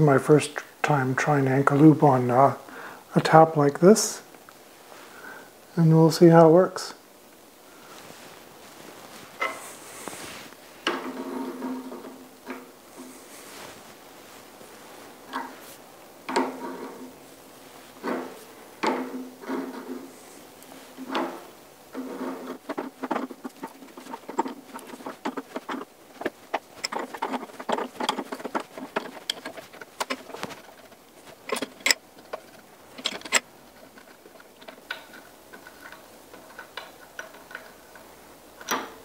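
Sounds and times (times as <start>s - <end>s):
tap clicks and metal scrapes: 21.0s - 39.0s.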